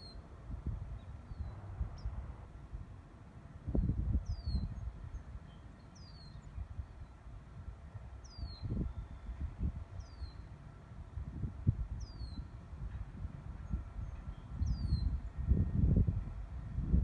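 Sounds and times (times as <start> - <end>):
wind rumble on microphone: 0.0 - 17.0
bird chirping: 4.2 - 6.6.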